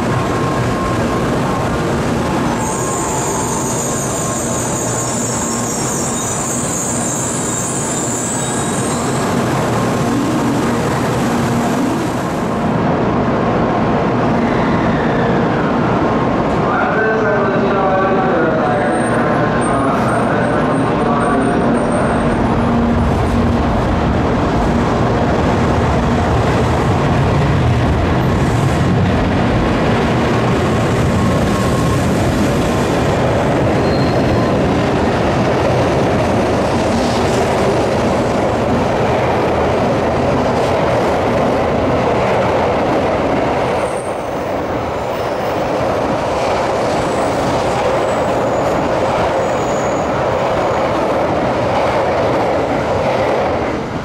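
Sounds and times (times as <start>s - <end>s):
train wheels rumbling on rail: 0.0s - 54.0s
faint high squeals: 2.5s - 9.2s, 33.7s - 34.6s.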